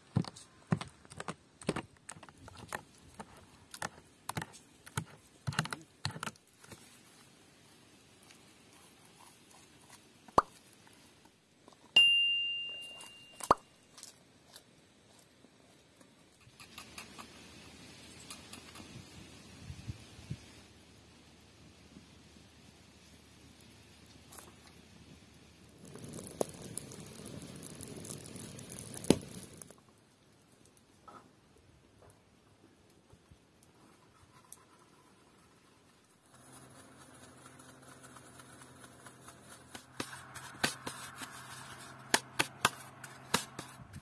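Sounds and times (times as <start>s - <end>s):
bright bell ding: 12.0s - 13.5s
kindling crackling as lit: 23.0s - 31.0s.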